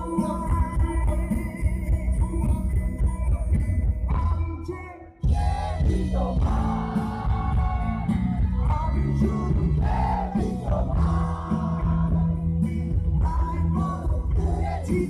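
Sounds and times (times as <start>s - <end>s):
live rock band: 0.0s - 4.6s, 5.2s - 15.0s
person singing: 4.1s - 15.0s.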